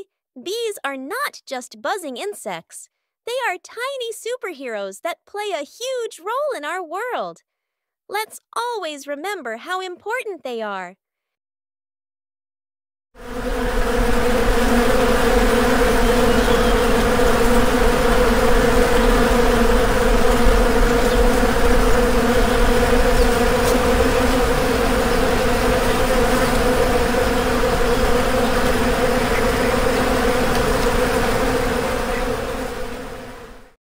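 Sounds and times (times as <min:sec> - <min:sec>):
bees buzzing: 0:13.2 - 0:33.8.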